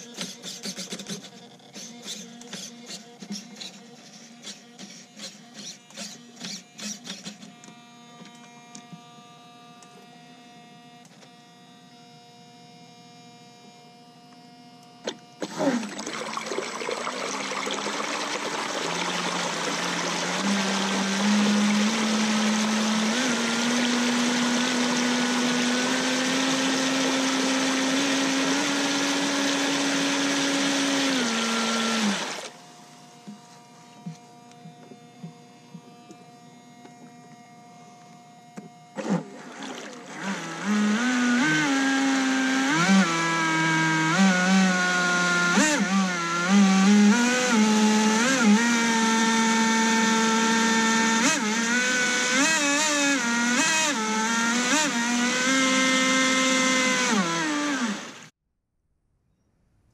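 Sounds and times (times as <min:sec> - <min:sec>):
motor revving in short blips: 0:00.0 - 0:07.6, 0:15.2 - 0:32.6, 0:38.9 - 0:58.3
electric motor whine: 0:00.0 - 0:58.4
jet of water spraying: 0:15.4 - 0:30.7.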